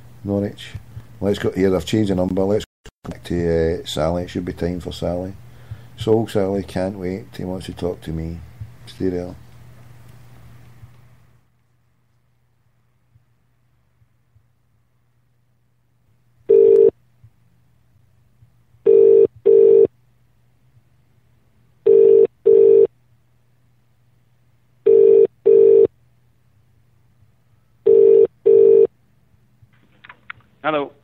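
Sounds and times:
telephone ringing tone: 16.5 - 16.9, 18.8 - 19.9, 21.8 - 22.9, 24.8 - 25.9, 27.8 - 28.9.

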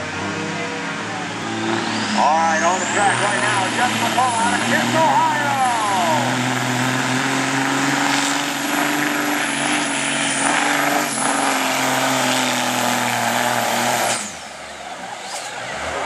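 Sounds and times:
truck diesel engine under load: 0.0 - 16.0
falling whine winding down: 0.5 - 13.4.

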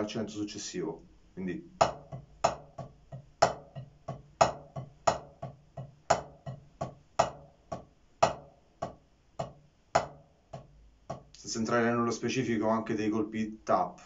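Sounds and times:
drumsticks tapping a practice pad: 1.8 - 11.4.

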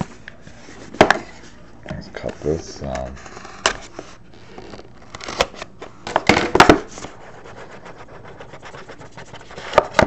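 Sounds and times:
shrink wrap crinkling and snipping: 4.5 - 5.7.

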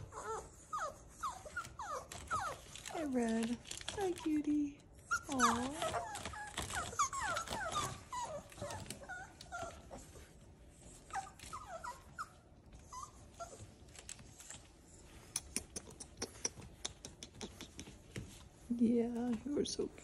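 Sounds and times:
puppies whimpering: 0.0 - 3.0, 5.0 - 17.6.

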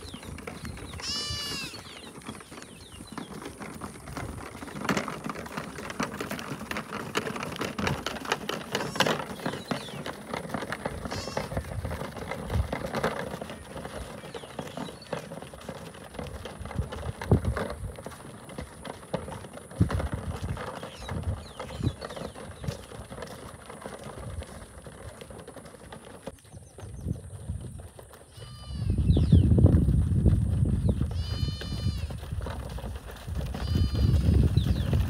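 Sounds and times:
livestock bleating: 1.0 - 1.9, 11.0 - 11.6, 28.3 - 29.0, 31.2 - 32.2, 33.6 - 34.3
knocks and clatter: 2.0 - 26.9.

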